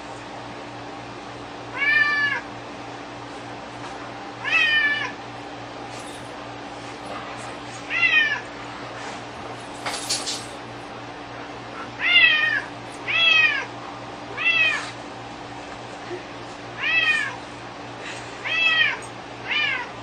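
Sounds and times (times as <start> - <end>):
cat meowing: 1.7 - 2.4, 4.4 - 5.2, 7.9 - 8.5, 12.0 - 13.7, 14.3 - 15.0, 16.8 - 17.4, 18.4 - 19.9.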